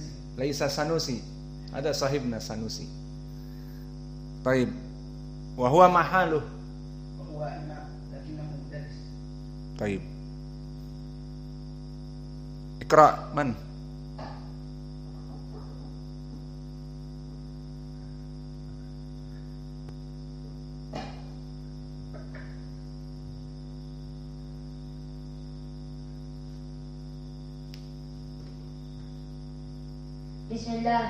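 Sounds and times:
electrical mains hum: 0:00.0 - 0:31.0.

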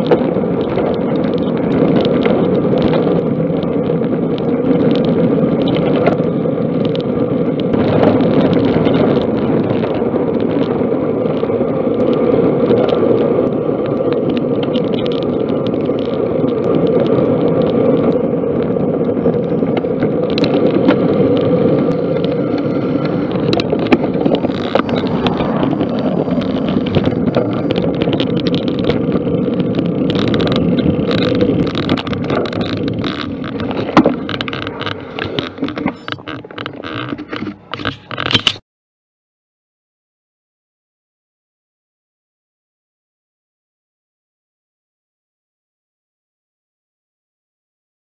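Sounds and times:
wind rushing over microphone: 0:00.0 - 0:38.4
tyre noise on tarmac: 0:00.0 - 0:38.6.

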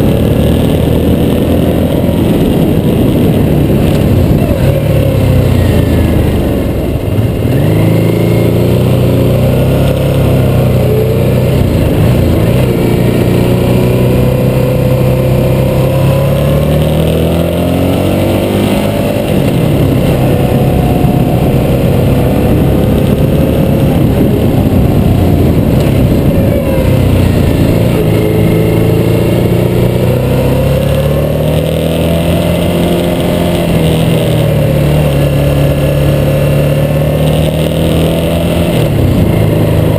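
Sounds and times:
motorcycle engine under load: 0:00.0 - 0:39.9.

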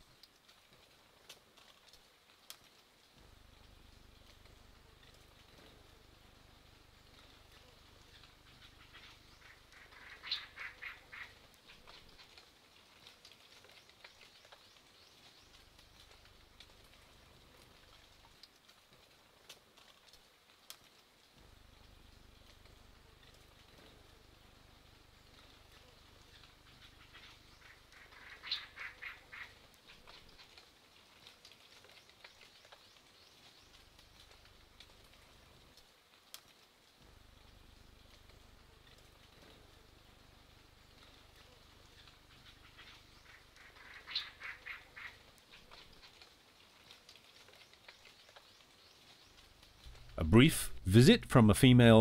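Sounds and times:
light splashes and drips: 0:00.0 - 0:50.2
harsh bird calls: 0:08.5 - 0:11.4, 0:26.4 - 0:29.6, 0:42.1 - 0:45.2.

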